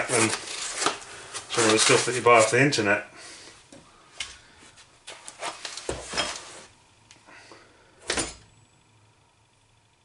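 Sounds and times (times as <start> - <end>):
packing material rustling: 0.0 - 2.8, 5.1 - 6.7.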